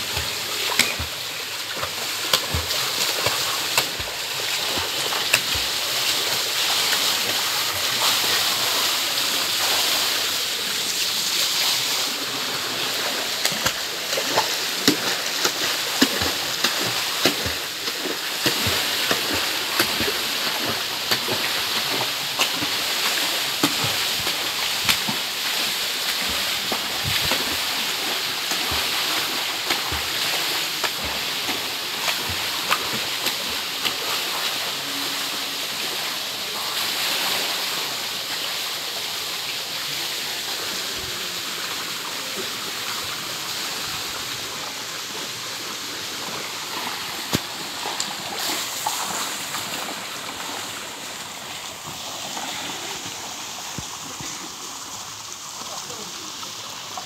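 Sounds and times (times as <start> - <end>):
running splashing water: 0.0 - 57.0.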